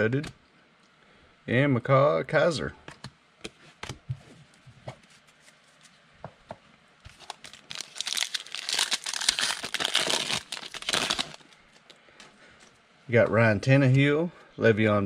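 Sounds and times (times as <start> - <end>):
foil pack tearing: 7.1 - 11.6
wrapper crinkling: 7.1 - 11.9.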